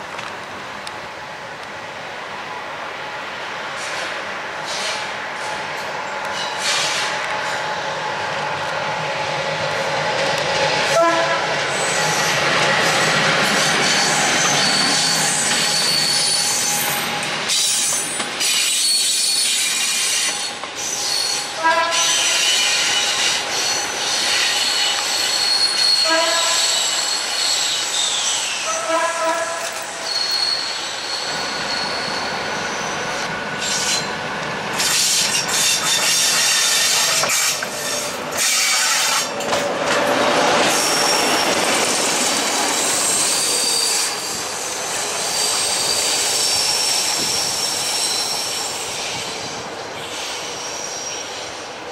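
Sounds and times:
train wheels squealing: 0:03.8 - 0:07.8, 0:11.7 - 0:34.2, 0:34.8 - 0:51.8
train horn toots: 0:10.9 - 0:11.6, 0:21.6 - 0:22.6, 0:25.9 - 0:27.0, 0:28.6 - 0:29.8.

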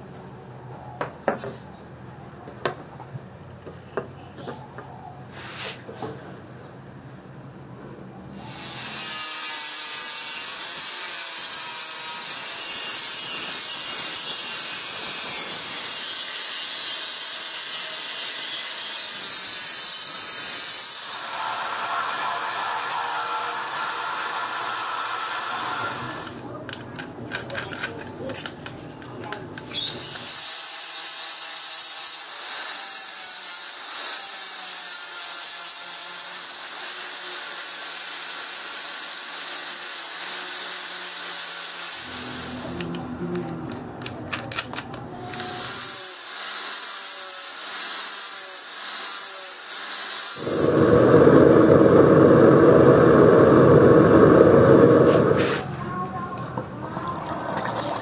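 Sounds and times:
angle grinder grinding metal: 0:08.4 - 0:25.9, 0:47.0 - 0:55.6
loud rushing noise: 0:50.4 - 0:55.8.

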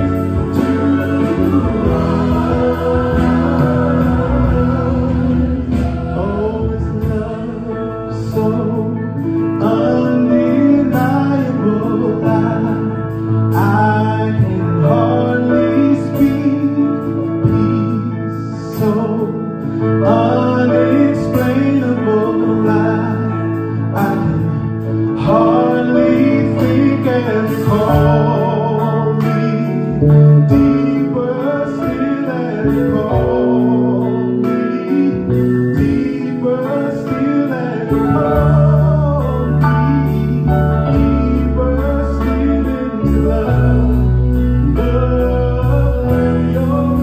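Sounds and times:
choir singing gospel song: 0:00.0 - 0:18.8, 0:19.6 - 0:47.0
instrumental accompaniment with beat: 0:00.0 - 0:47.0.

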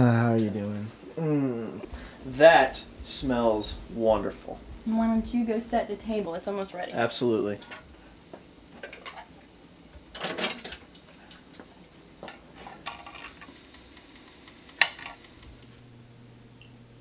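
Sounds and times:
low room hum: 0:00.0 - 0:17.0
dishes and cutlery clinking: 0:10.1 - 0:13.4.

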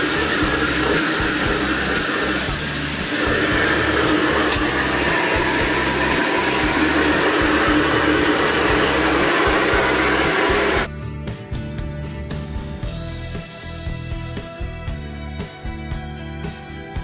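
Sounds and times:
gas burner rushing: 0:00.0 - 0:10.9
background music: 0:00.0 - 0:17.0.

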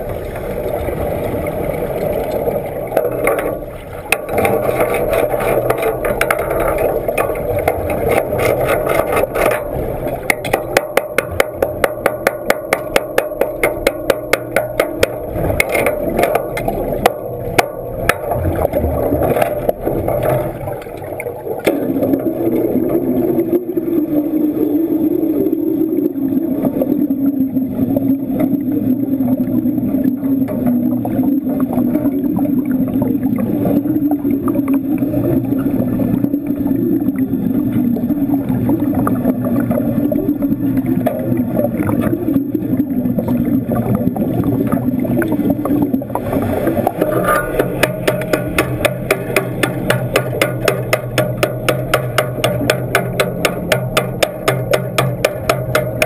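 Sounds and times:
muffled underwater rumble: 0:13.6 - 0:51.2.

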